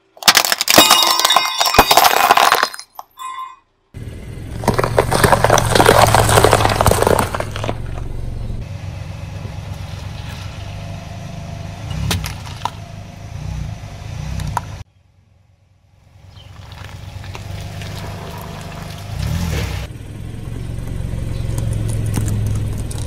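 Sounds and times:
car engine humming: 4.0s - 23.0s
tyre crunching peppers: 4.5s - 8.1s, 16.4s - 19.9s.

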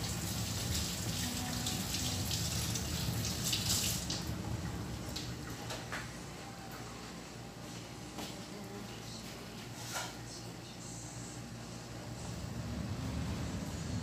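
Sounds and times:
water boiling in a pot: 0.0s - 5.7s.

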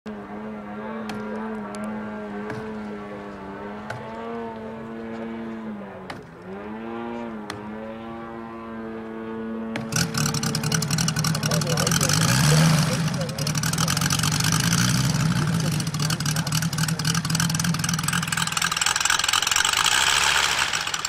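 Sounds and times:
model plane engine idling: 9.7s - 21.0s.

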